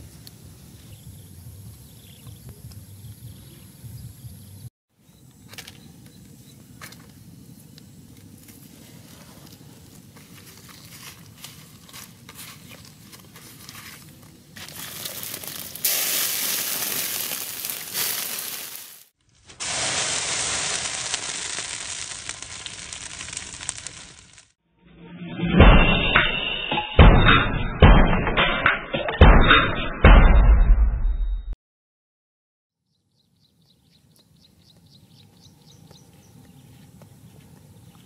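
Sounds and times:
liver sizzling on hot rock: 0:14.6 - 0:24.5.

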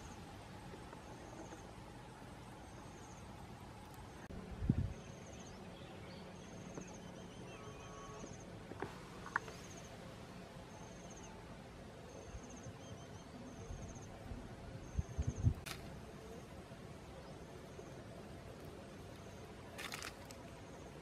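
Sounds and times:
insects chirping in trills: 0:00.0 - 0:04.3, 0:09.2 - 0:11.4, 0:12.0 - 0:21.0.

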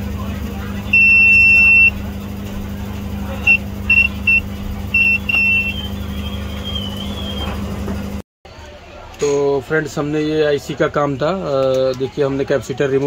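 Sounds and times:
steady low hum: 0:00.0 - 0:08.2
multimeter buzzer beeping: 0:00.9 - 0:02.0, 0:03.4 - 0:06.5.

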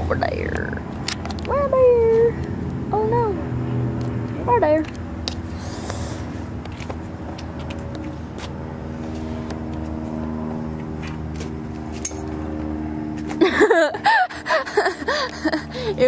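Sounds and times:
people laughing: 0:13.4 - 0:15.8.

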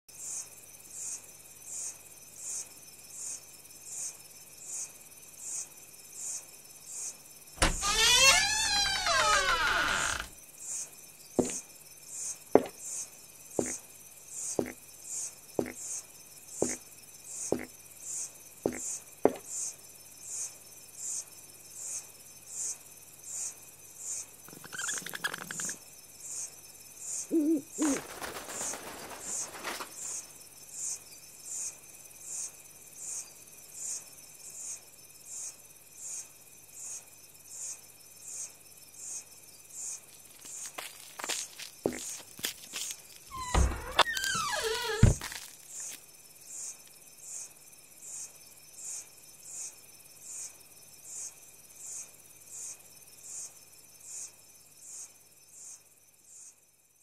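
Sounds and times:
insect chirping: 0:00.1 - 0:57.0
soft knocks: 0:11.4 - 0:11.6, 0:12.6 - 0:12.8, 0:18.7 - 0:19.4
brief rustle: 0:27.8 - 0:30.2.

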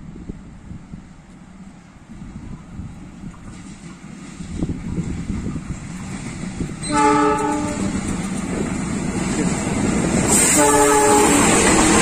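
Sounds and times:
locomotive engine and wheels rumbling: 0:00.0 - 0:12.0
multi-tone train horn: 0:06.8 - 0:08.0, 0:10.3 - 0:12.0.

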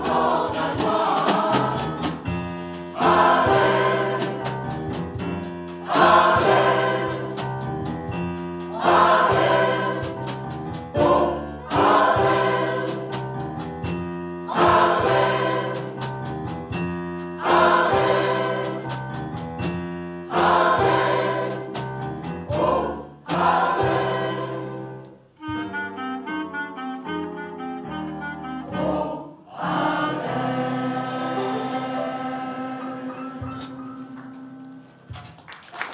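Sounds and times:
mixed choir singing: 0:00.0 - 0:04.8, 0:05.8 - 0:07.5, 0:08.7 - 0:13.3, 0:14.4 - 0:16.1, 0:17.4 - 0:19.2, 0:20.2 - 0:25.2, 0:28.6 - 0:33.8
drum kit: 0:00.0 - 0:24.8, 0:28.7 - 0:35.6.

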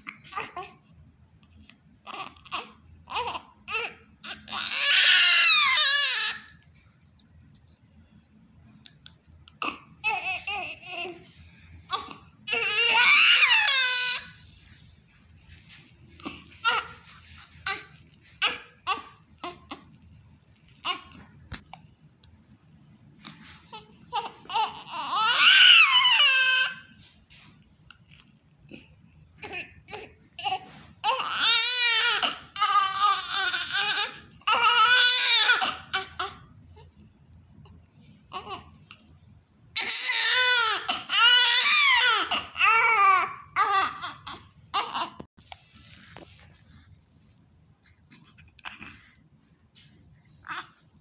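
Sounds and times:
newborn baby crying: 0:02.0 - 0:06.6, 0:09.6 - 0:14.5, 0:16.2 - 0:20.0, 0:20.6 - 0:21.2, 0:23.7 - 0:27.0, 0:29.4 - 0:36.4, 0:38.3 - 0:38.7, 0:39.8 - 0:45.3, 0:50.4 - 0:50.8.

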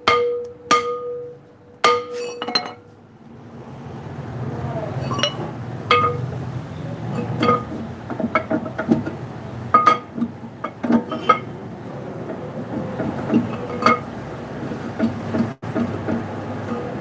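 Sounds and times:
metallic clinks on brake drum: 0:00.0 - 0:03.0, 0:05.0 - 0:06.4, 0:07.1 - 0:11.5.

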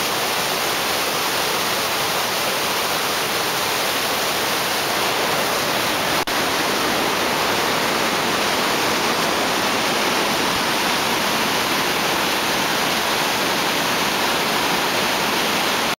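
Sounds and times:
water rushing over boulders: 0:00.0 - 0:16.0.

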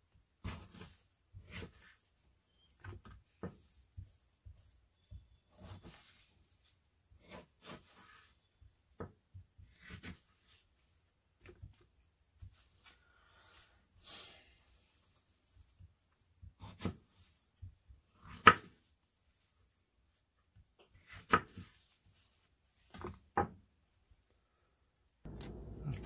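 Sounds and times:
knife slicing strawberries: 0:16.5 - 0:17.2, 0:25.3 - 0:26.0.

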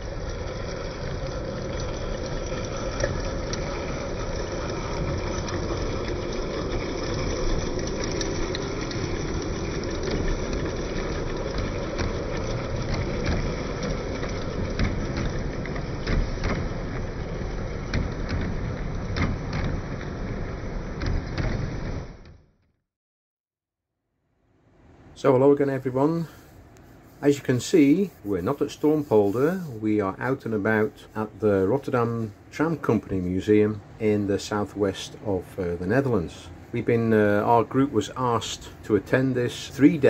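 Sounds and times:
steam locomotive hiss and rumble: 0:25.2 - 0:40.0.

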